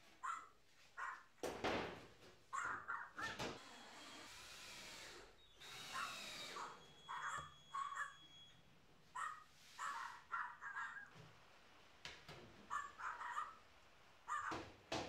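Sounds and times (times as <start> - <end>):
cordless drill driving screws: 3.5 - 6.8
harsh caw-like bird calls: 12.7 - 13.6, 14.3 - 14.7.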